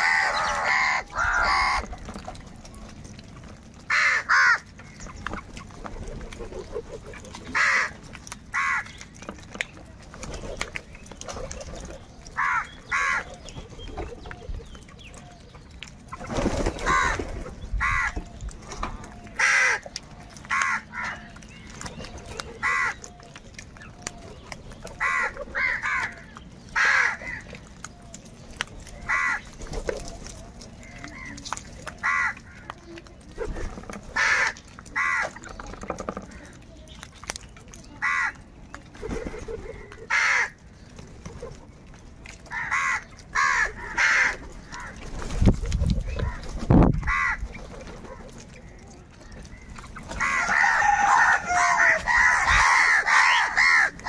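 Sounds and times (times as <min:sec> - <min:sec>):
crows cawing: 0:00.0 - 0:01.9, 0:03.9 - 0:05.0, 0:07.5 - 0:09.0, 0:12.4 - 0:13.4, 0:16.9 - 0:17.2, 0:17.8 - 0:18.3, 0:19.4 - 0:19.9, 0:20.5 - 0:21.3, 0:22.6 - 0:23.0, 0:25.0 - 0:27.6, 0:29.1 - 0:29.5, 0:32.0 - 0:32.7, 0:34.2 - 0:35.4, 0:38.0 - 0:38.4, 0:40.1 - 0:40.6, 0:42.5 - 0:45.0, 0:47.0 - 0:47.5, 0:50.2 - 0:54.0.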